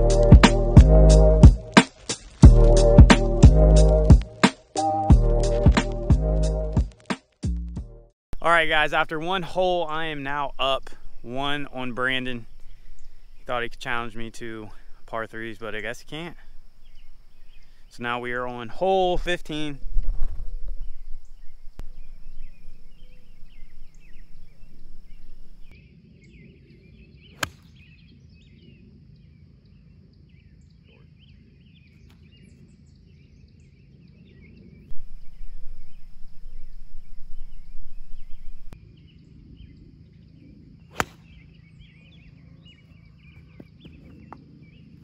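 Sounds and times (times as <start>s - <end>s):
birds chirping: 8.4s - 45.0s
low rumble: 34.8s - 41.4s
golf club striking ball: 40.9s - 41.4s.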